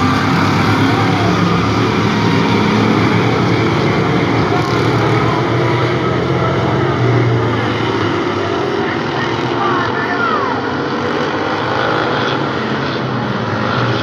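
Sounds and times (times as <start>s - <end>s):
race car engines roaring: 0.0s - 14.0s.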